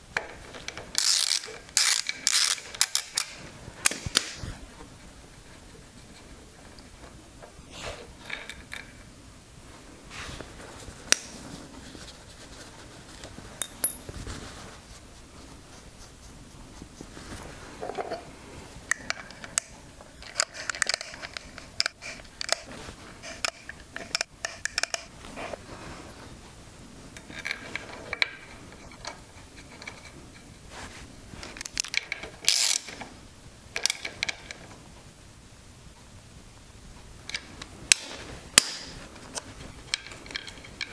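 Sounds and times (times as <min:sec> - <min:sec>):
hand tools clicking on metal: 0:00.7 - 0:04.4.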